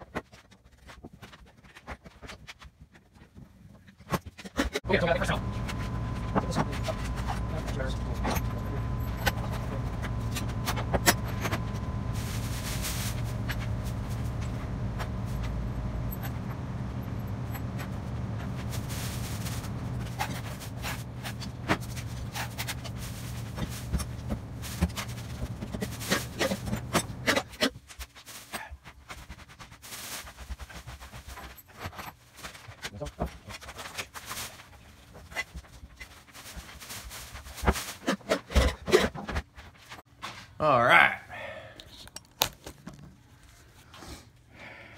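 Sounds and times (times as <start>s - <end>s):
steady low hum: 4.8s - 27.4s.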